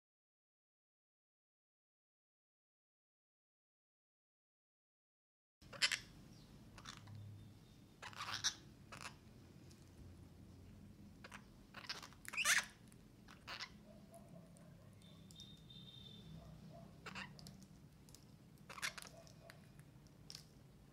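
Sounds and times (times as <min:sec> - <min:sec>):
parakeets crunching seeds: 0:11.2 - 0:13.8, 0:16.9 - 0:20.6.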